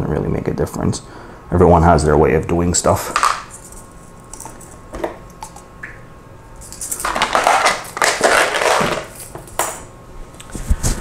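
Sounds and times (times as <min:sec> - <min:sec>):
plastic rustling and crinkling: 0:06.6 - 0:09.6.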